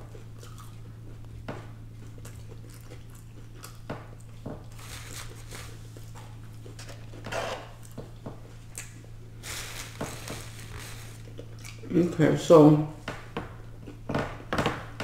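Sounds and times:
chewing and biting: 0.0s - 12.0s, 13.6s - 14.5s
low electrical hum: 0.0s - 15.0s.

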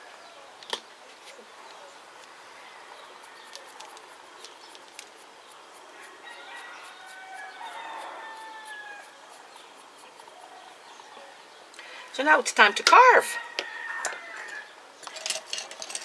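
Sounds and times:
rooster crowing: 6.0s - 9.2s, 12.7s - 14.8s.

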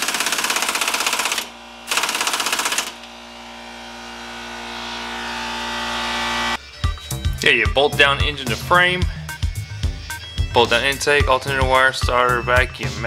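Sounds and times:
pneumatic impact wrench hammering: 0.0s - 3.1s
steady humming tone: 1.5s - 1.9s, 3.0s - 7.2s.

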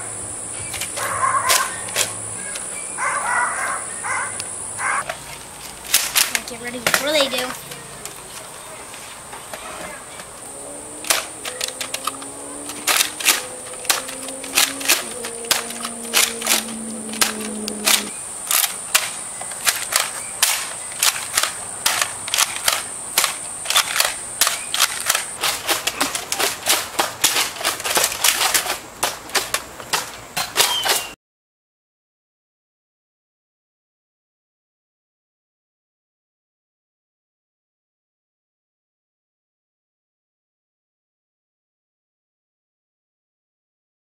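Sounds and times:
foam dart blasters firing: 11.0s - 29.2s.

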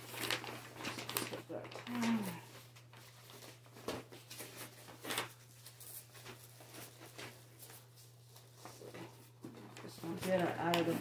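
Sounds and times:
cardboard packaging rustling: 0.0s - 11.0s.

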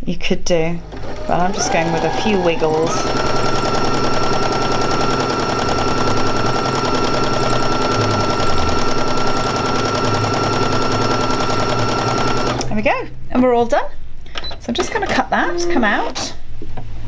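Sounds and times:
sewing machine motor whine: 0.8s - 12.7s
sewing machine needle chatter: 0.8s - 12.7s.

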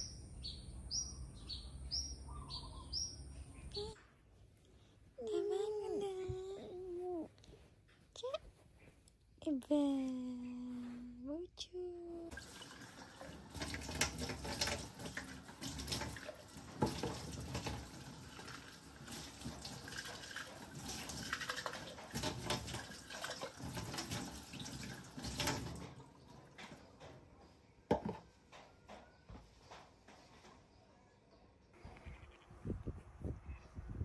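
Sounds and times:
water splashing and running: 12.3s - 26.4s
bottles knocking against sink: 27.9s - 28.3s.

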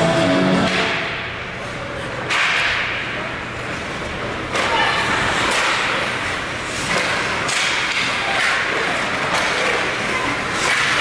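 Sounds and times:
sticks clacking on puck: 5.4s - 6.0s, 6.8s - 10.0s, 10.6s - 11.0s.

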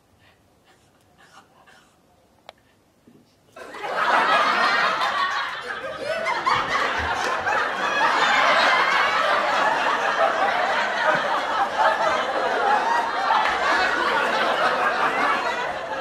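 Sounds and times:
group of people laughing: 3.6s - 16.0s.

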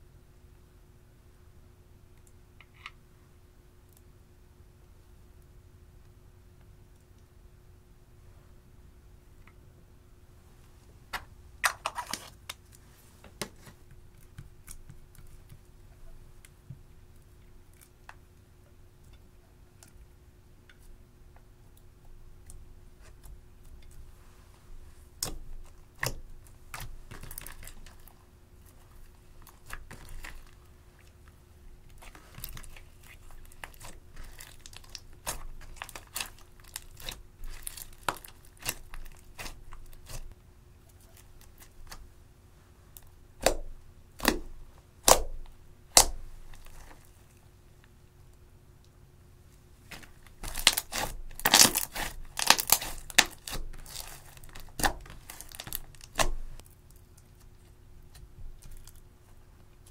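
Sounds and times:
slime crackling and clicking: 31.9s - 40.3s, 43.4s - 47.0s, 49.9s - 56.6s
slime popping: 31.9s - 40.3s, 49.9s - 56.6s.

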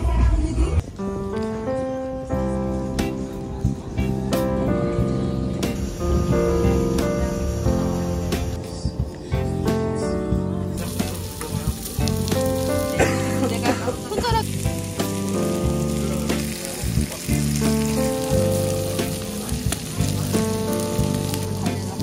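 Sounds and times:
background music: 0.0s - 22.0s
meat sizzling on griddle: 10.8s - 22.0s.

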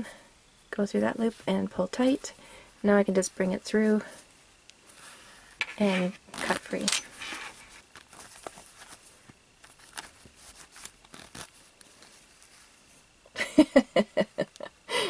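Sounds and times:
hands rustling crochet work: 4.8s - 13.1s
woman laughing: 13.3s - 15.0s.

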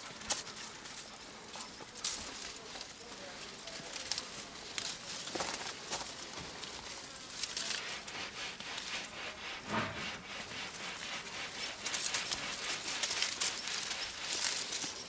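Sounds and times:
mulch and twigs crackling: 0.0s - 9.6s, 10.2s - 15.0s
dogs rustling leaves: 0.0s - 15.0s.

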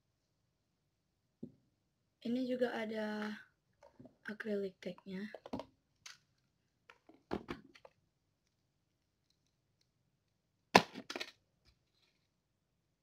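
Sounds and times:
toy handling knocks and rustles: 5.1s - 6.3s, 6.9s - 8.0s.

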